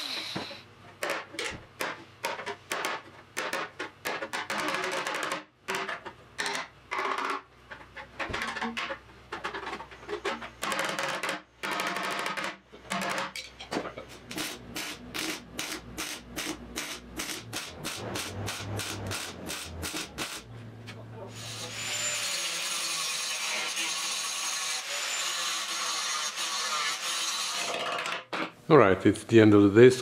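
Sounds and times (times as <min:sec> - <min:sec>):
welder crackling in bursts: 0:14.2 - 0:20.5.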